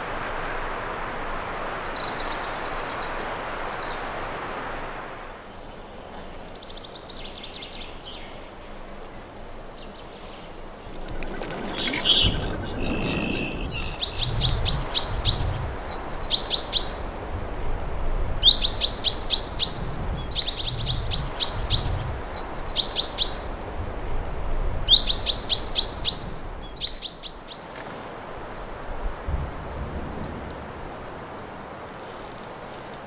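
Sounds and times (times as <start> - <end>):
duck taking off with splash: 10.8 - 14.0
chaffinch singing trilled notes: 10.9 - 15.5
wing whistle: 10.9 - 15.6.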